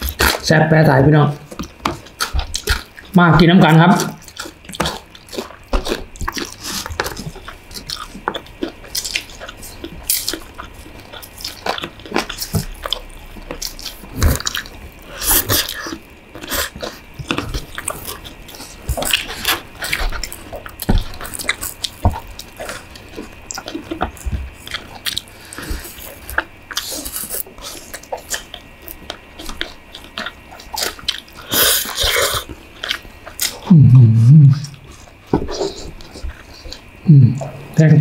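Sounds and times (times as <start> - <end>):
wet chewing and crunching: 0.0 - 33.7, 34.5 - 37.8
low voice hum: 33.6 - 35.9, 37.0 - 38.0.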